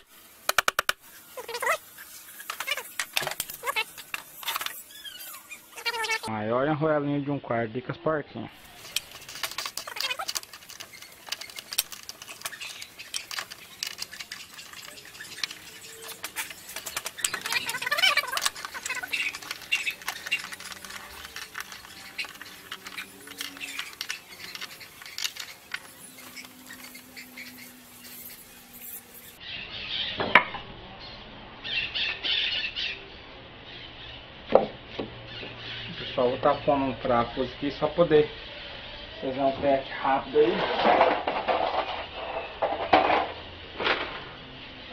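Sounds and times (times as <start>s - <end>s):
tools clicking and rattling: 8.6s - 28.2s.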